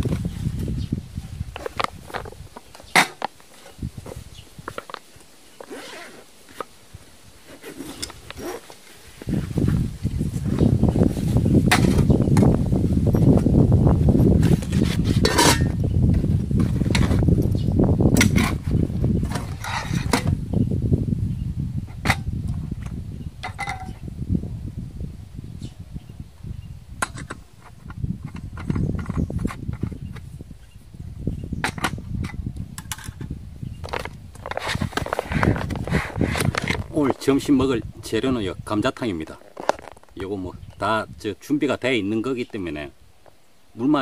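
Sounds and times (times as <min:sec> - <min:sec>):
zipper being pulled open: 0:05.6 - 0:06.7, 0:07.4 - 0:09.8, 0:14.4 - 0:15.6, 0:34.4 - 0:37.0.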